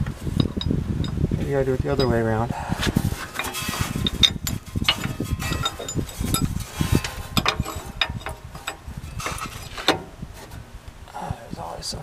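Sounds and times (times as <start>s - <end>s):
metal parts clicking and clinking: 1.9s - 2.4s, 3.3s - 10.1s.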